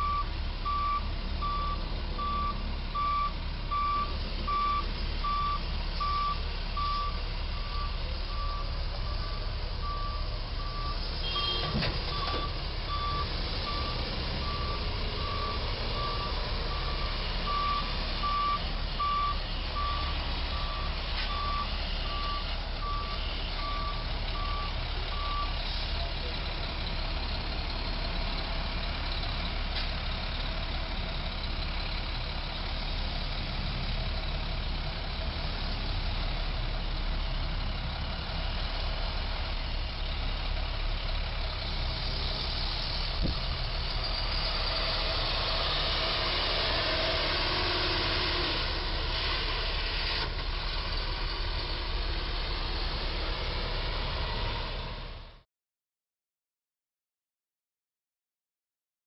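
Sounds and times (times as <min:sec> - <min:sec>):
truck reversing alarm beeping: 0:00.0 - 0:35.3
traffic noise: 0:00.0 - 0:55.4
truck engine: 0:00.0 - 0:55.4.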